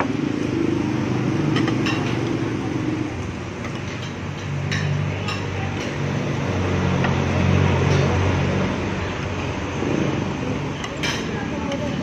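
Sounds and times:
cutlery clinking on plates: 1.5s - 2.3s, 10.8s - 11.9s.

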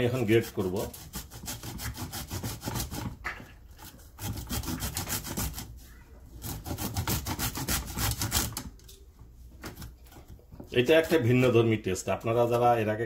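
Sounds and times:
grating on metal grater: 0.0s - 3.2s, 3.8s - 5.8s, 6.4s - 8.6s.

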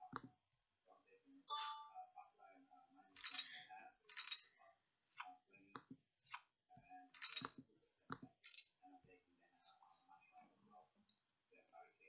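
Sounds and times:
chip-like rattles: 7.1s - 7.6s.

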